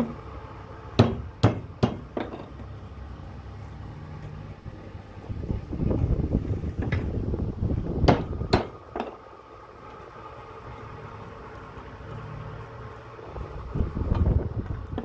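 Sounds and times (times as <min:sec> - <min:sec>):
steady low hum: 0:00.0 - 0:15.0
sharp metallic knocks: 0:01.0 - 0:02.6.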